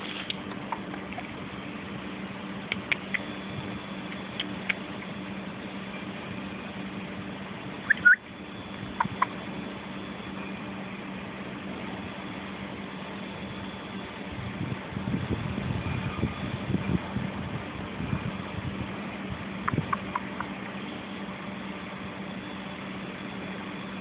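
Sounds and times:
steady low hum: 0.0 - 24.0
short high rising chirps: 7.9 - 8.2.

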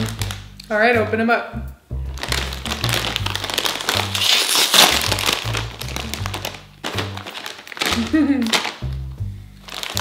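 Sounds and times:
background music with bass line: 0.0 - 10.0
snack bag crinkling: 2.1 - 10.0.

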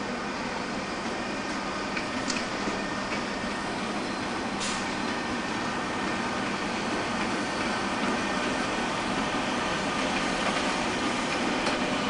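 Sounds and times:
electric locomotive running: 0.0 - 12.0
short hiss: 4.6 - 4.9.

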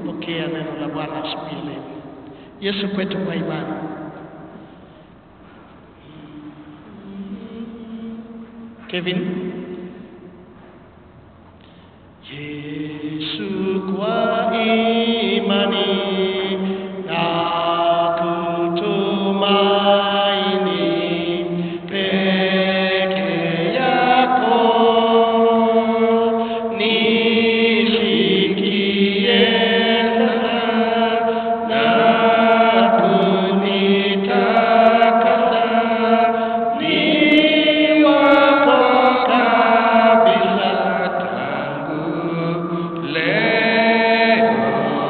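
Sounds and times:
voices singing a hymn: 12.2 - 45.0.

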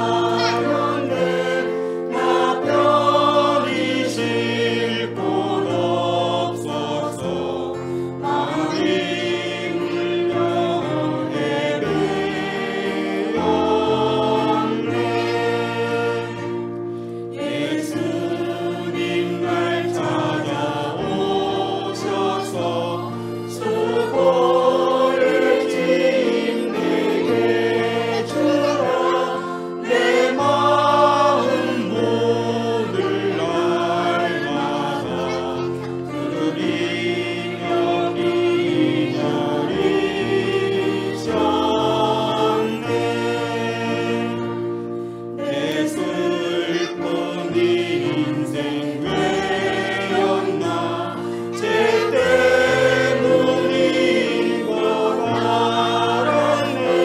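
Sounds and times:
hymn sung in slow held notes: 0.0 - 57.0
sustained accompaniment: 0.0 - 57.0.

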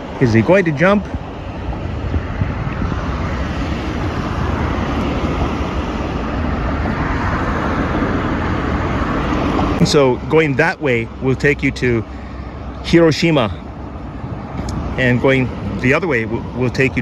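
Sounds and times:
road traffic passing: 0.0 - 17.0
wind rumble on microphone: 0.8 - 9.9.

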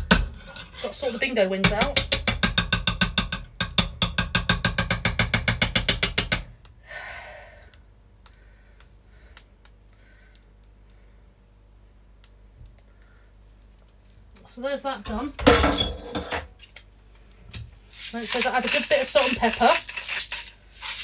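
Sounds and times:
masher scraping pot: 0.0 - 6.5, 17.9 - 21.0
potato masher pounding in saucepan: 0.0 - 6.6, 18.0 - 21.0.

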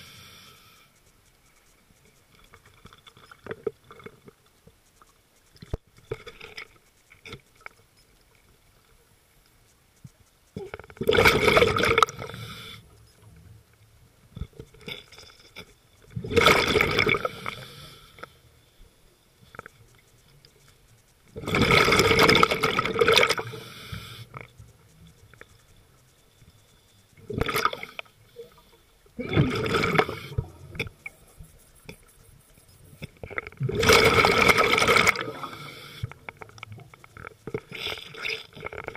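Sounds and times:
underwater bubbles gurgling: 10.6 - 12.7, 13.4 - 18.3, 21.2 - 26.1, 27.1 - 38.9.

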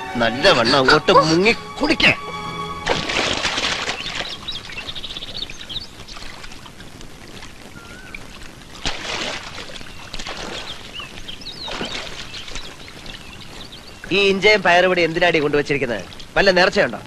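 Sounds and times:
birds chirping: 0.0 - 8.8, 9.5 - 16.9
hands slapping water: 2.9 - 6.7, 8.8 - 13.2.

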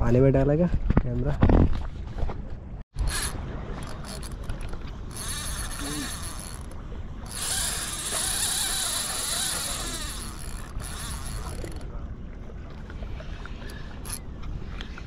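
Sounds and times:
fishing reel whirring: 3.0 - 11.8, 13.6 - 14.2.

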